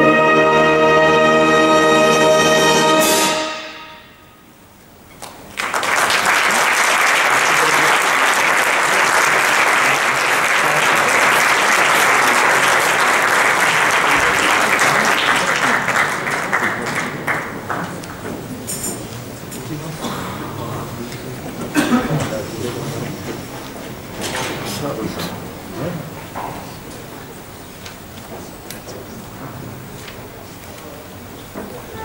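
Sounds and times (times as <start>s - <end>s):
wind orchestra chord: 0.0s - 4.7s
audience applauding: 5.2s - 19.3s.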